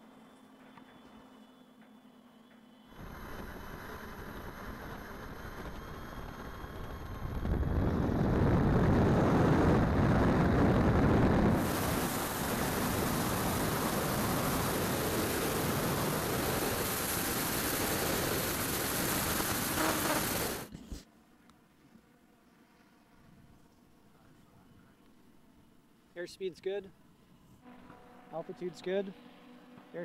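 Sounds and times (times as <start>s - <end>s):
electric motors and propellers whine: 0.0s - 26.4s, 27.0s - 30.0s
wind rushing over microphone: 3.0s - 20.7s.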